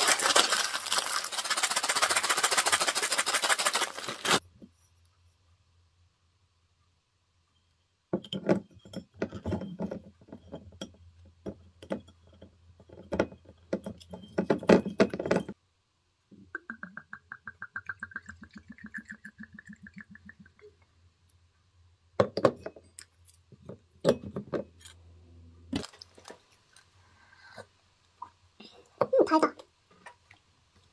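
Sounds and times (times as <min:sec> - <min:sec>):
foil crinkling and tearing: 0:00.0 - 0:04.4.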